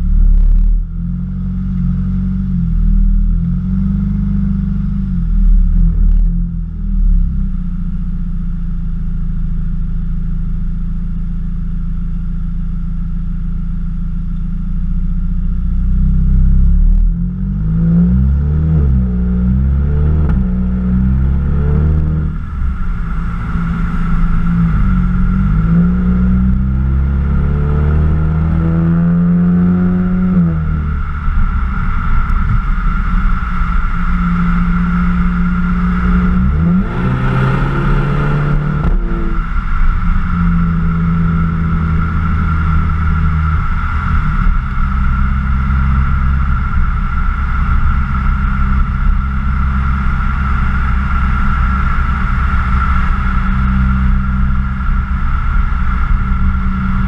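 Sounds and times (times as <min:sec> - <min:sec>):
car exhaust revving: 0:00.0 - 0:57.0
rushing noise: 0:19.7 - 0:28.9, 0:30.1 - 0:57.0.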